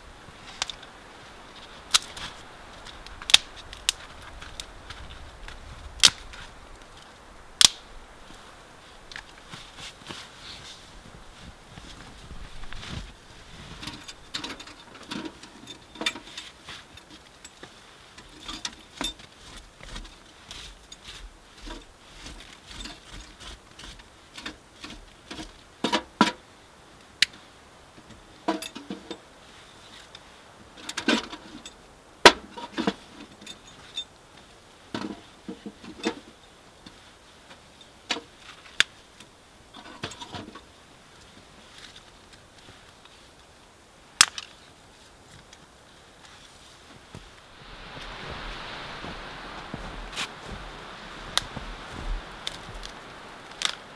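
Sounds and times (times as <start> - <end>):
twigs snapping: 1.7 - 8.0, 44.2 - 44.6, 47.3 - 53.9.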